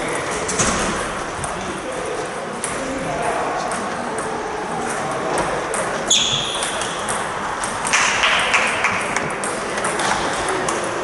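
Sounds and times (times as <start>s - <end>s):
high-pitched squeak: 6.1s - 6.9s
table tennis balls clicking: 6.6s - 11.0s.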